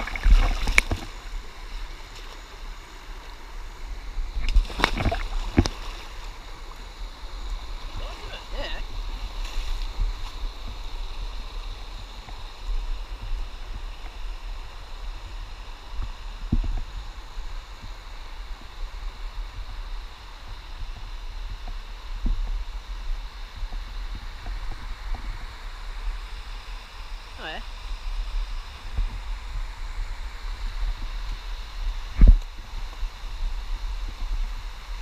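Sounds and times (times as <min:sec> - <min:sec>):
running water: 0:00.0 - 0:16.9.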